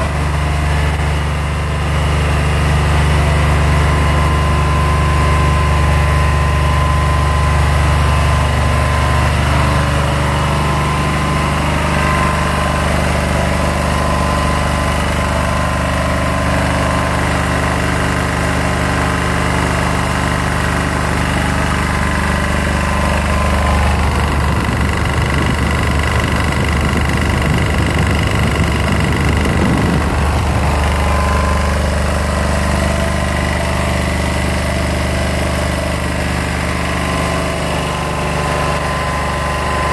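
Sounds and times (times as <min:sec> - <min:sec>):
diesel generator running: 0:00.0 - 0:39.9.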